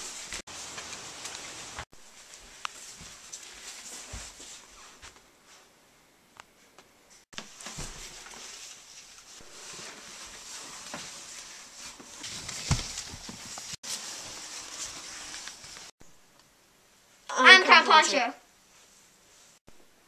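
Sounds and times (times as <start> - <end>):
plastic poncho rustling: 0.0 - 5.7, 7.4 - 16.0.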